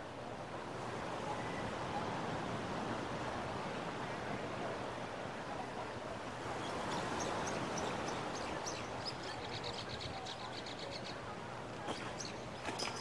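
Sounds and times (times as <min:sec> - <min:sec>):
ocean surf on a beach: 0:00.0 - 0:09.6.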